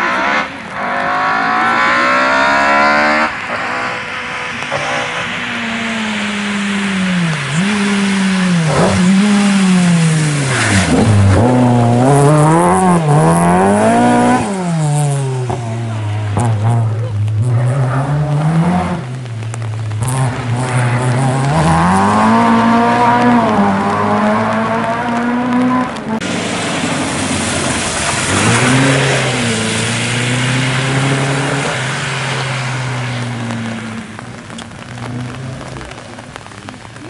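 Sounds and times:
heavy rain and tyre spray: 0:00.0 - 0:37.0
rally car engine revving: 0:00.0 - 0:37.0.

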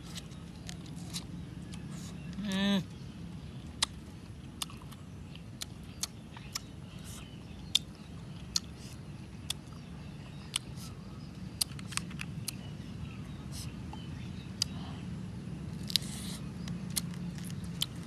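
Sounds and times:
steady low hum: 0:00.0 - 0:18.0
man chewing and biting food: 0:03.6 - 0:10.9, 0:11.6 - 0:12.7, 0:15.7 - 0:18.0.

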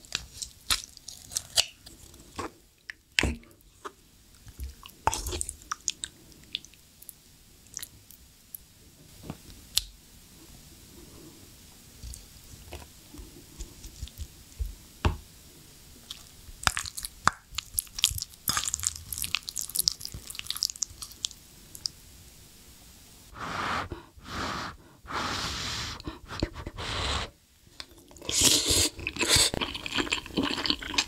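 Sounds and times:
soft chewing: 0:00.1 - 0:08.6, 0:16.0 - 0:22.0, 0:27.8 - 0:31.0
loud breathy bursts: 0:23.3 - 0:27.4.

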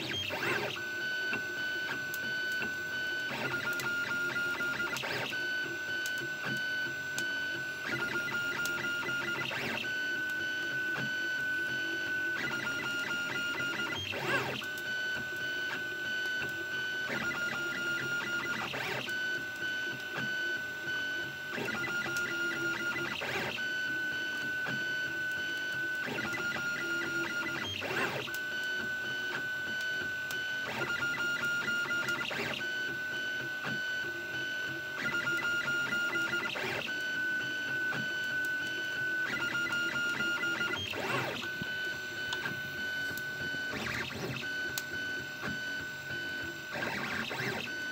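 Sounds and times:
fast ticking of print head: 0:00.0 - 0:47.9
stepper motors whining: 0:33.6 - 0:47.9.

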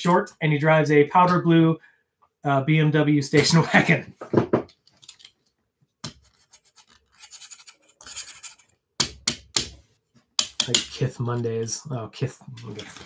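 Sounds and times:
scratchy rustling: 0:06.2 - 0:08.7.

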